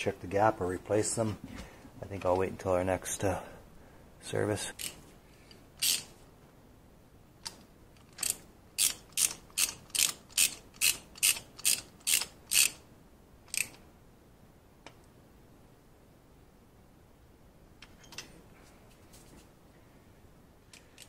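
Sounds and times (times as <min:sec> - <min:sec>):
ratchet wrench clicking: 0:05.8 - 0:06.1, 0:08.2 - 0:12.8, 0:13.5 - 0:13.8.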